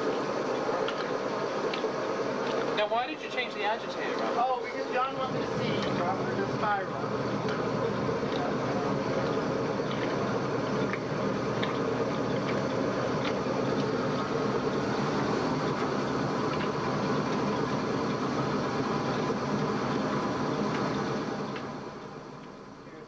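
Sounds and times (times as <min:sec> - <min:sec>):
washing machine running: 0:00.0 - 0:23.0
water churning: 0:04.4 - 0:21.5.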